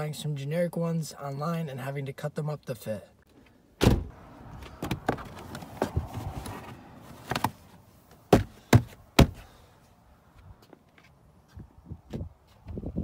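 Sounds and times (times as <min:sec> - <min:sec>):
rubber mat scraping and rustling: 0:04.7 - 0:09.4
knocks and taps on mat: 0:08.3 - 0:09.4.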